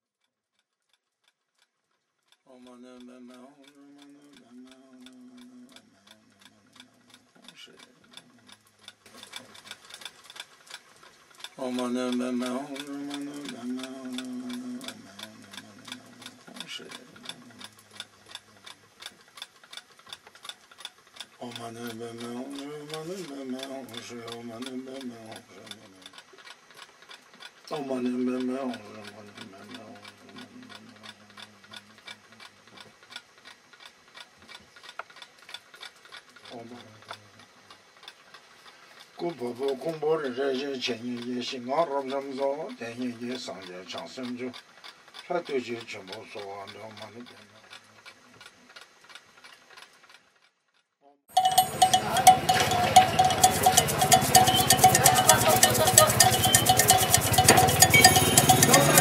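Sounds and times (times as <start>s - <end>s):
fast faint clicking: 0.0s - 59.0s
man chanting in low hum: 2.5s - 6.8s, 11.6s - 18.9s, 21.4s - 26.2s, 27.7s - 32.7s, 36.5s - 37.4s, 39.2s - 44.6s.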